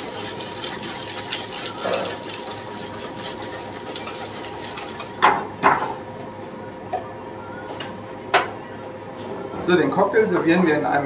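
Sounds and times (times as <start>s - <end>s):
ice rattling in cocktail shaker: 0.0s - 5.2s.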